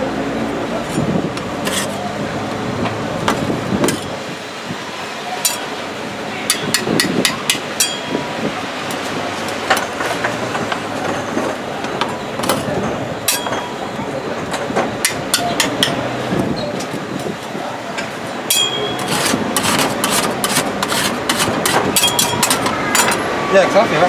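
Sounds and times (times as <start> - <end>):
metal spatulas tapping cold plate: 6.5 - 8.2, 18.5 - 20.7, 21.7 - 23.2.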